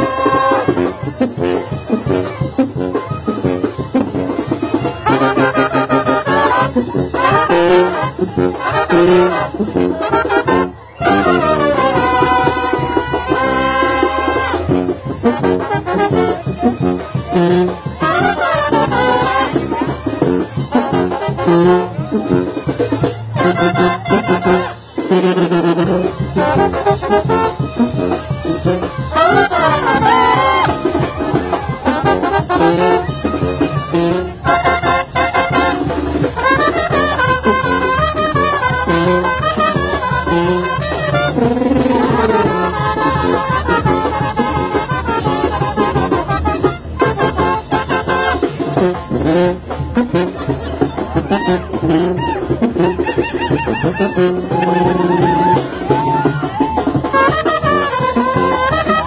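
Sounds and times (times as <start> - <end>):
brass band playing: 0.0 - 59.0.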